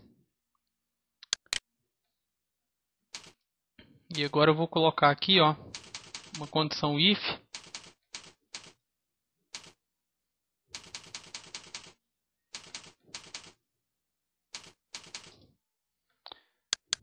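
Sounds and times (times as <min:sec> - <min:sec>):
computer keyboard typing: 0:03.2 - 0:03.4, 0:05.7 - 0:06.6, 0:07.5 - 0:08.8, 0:09.6 - 0:09.8, 0:10.8 - 0:13.6, 0:14.5 - 0:15.4.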